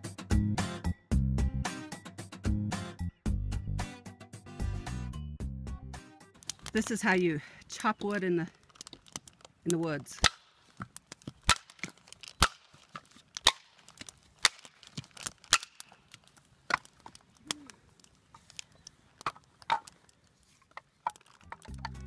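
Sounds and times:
dry branch cracking: 0:06.3 - 0:22.0.

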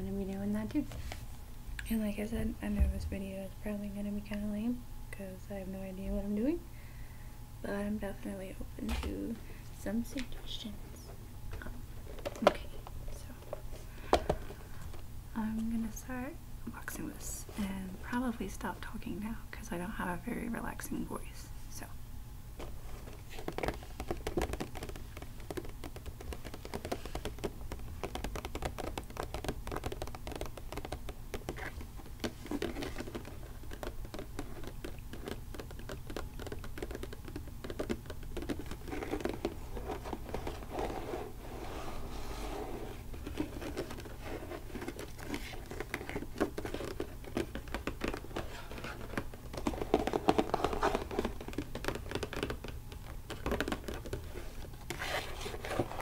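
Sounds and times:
low recording hum: 0:00.0 - 0:56.0
fingernails tapping on box: 0:23.5 - 0:40.6.

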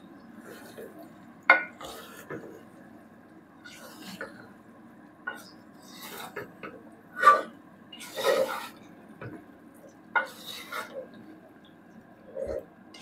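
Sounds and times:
wooden spoon stirring thick pickle: 0:05.4 - 0:11.8.

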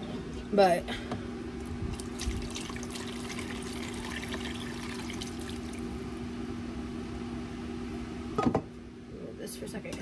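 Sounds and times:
low electrical hum: 0:00.0 - 0:10.0
liquid sloshing and trickling: 0:01.9 - 0:05.9.

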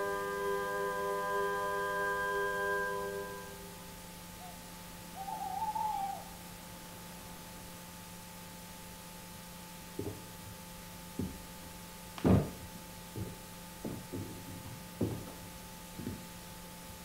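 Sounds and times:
steady low hum: 0:00.0 - 0:17.0
dull thumps: 0:10.0 - 0:10.4, 0:11.1 - 0:11.5, 0:12.2 - 0:16.3.

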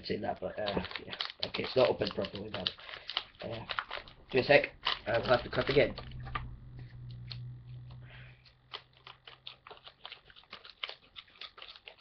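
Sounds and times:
plastic wrapper crinkling: 0:00.0 - 0:12.0
low hum: 0:03.9 - 0:09.8.

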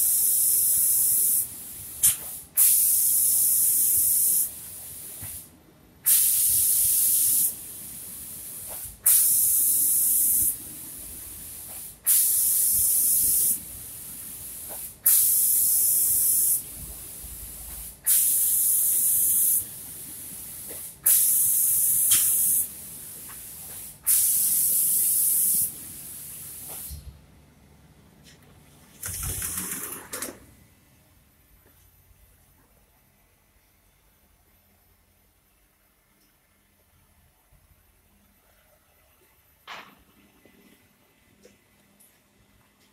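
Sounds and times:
spray gun hissing: 0:00.0 - 0:05.5, 0:06.1 - 0:27.0
faint steady hiss: 0:00.0 - 0:29.5.

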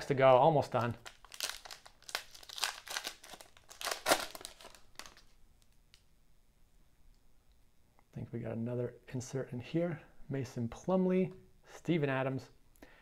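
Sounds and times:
foil wrapper tearing and crinkling: 0:01.0 - 0:05.4.

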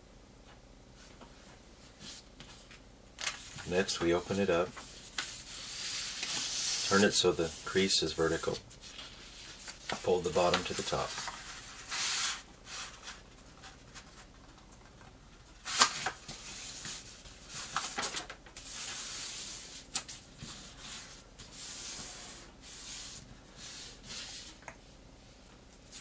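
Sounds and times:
paper rustling as it is folded: 0:02.0 - 0:24.6
sharp paper snap: 0:15.6 - 0:16.4.

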